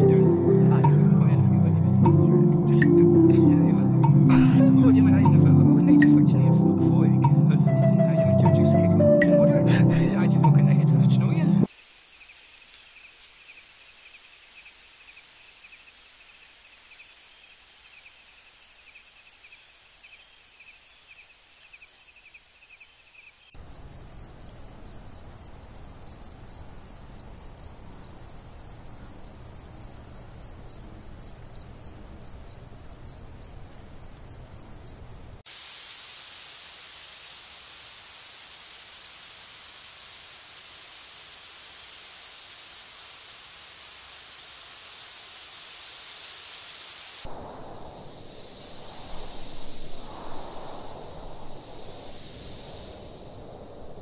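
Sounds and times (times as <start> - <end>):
steady high hiss: 11.6 - 25.6, 35.4 - 54.0
crickets trilling: 11.7 - 54.0
low rumble: 47.3 - 54.0.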